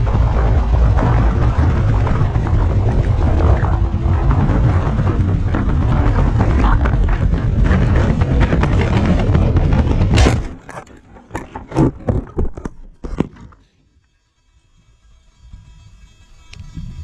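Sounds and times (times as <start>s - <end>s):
dense rushing noise: 0.0s - 12.2s
hard impact: 0.0s - 13.4s
knocks and scrapes on ground: 0.0s - 13.9s.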